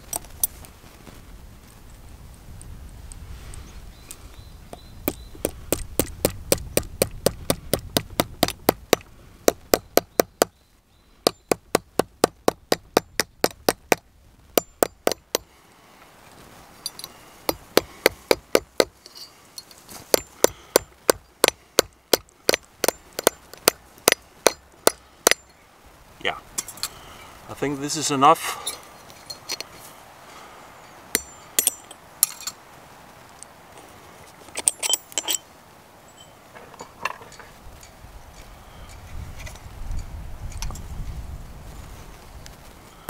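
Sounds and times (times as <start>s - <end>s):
hammer striking metal pin: 31.2s - 32.5s.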